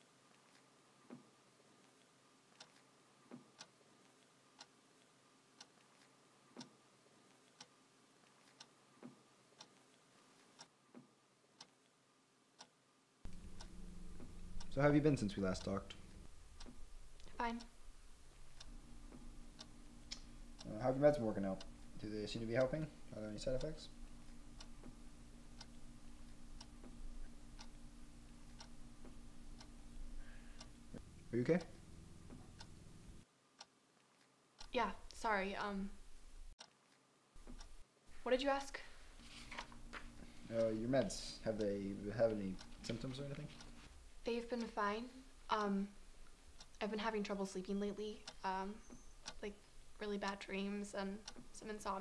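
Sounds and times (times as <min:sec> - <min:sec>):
clock ticking faintly: 0:00.5 - 0:07.8, 0:08.4 - 0:11.8, 0:12.6 - 0:33.7, 0:34.6 - 0:36.8, 0:37.4 - 0:52.0
low hum: 0:13.3 - 0:33.2
irregular clicks: 0:15.6 - 0:20.7, 0:23.9 - 0:35.2, 0:36.5 - 0:37.8, 0:51.2 - 0:51.6.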